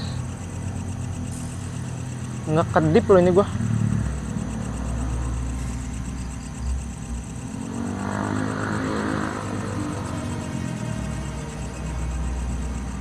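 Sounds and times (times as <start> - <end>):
faint high whine: 0.0 - 13.0
low mechanical hum: 0.0 - 13.0.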